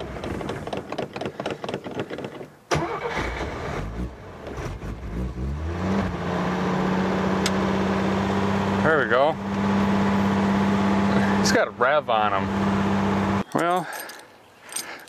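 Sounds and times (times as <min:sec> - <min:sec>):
car engine running unevenly: 0:06.2 - 0:13.4.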